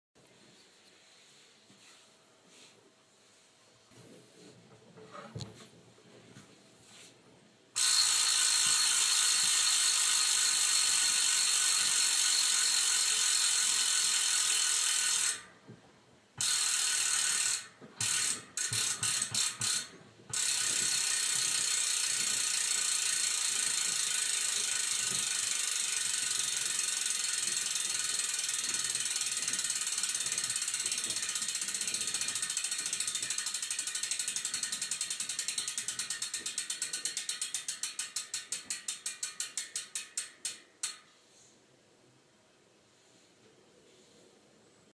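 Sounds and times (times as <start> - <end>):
bicycle freehub clicking ratchet buzz: 7.8 - 15.6, 16.4 - 41.1.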